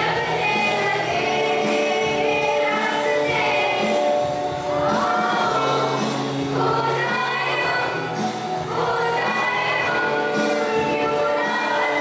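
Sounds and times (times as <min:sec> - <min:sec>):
group singing together: 0:00.0 - 0:12.0.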